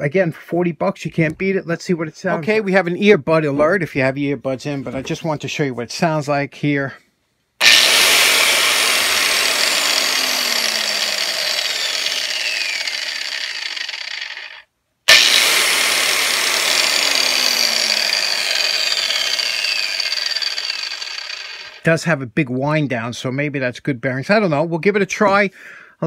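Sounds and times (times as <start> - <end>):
angle grinder whirring: 7.6 - 21.9.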